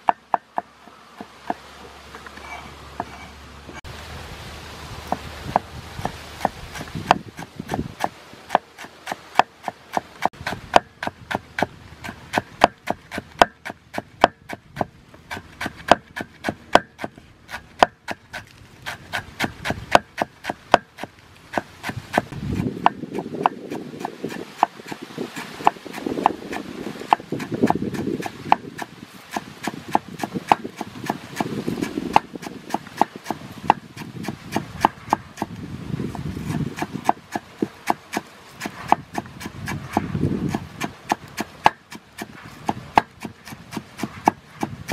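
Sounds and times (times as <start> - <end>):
cleaver chopping on wooden board: 0.0 - 1.6, 5.1 - 44.9
low rubbing noise: 0.7 - 8.3.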